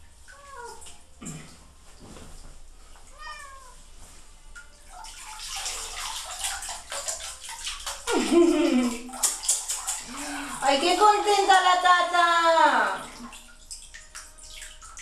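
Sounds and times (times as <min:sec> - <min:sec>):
water splashing in bathtub: 0:00.0 - 0:15.0
cat meowing: 0:03.1 - 0:03.8.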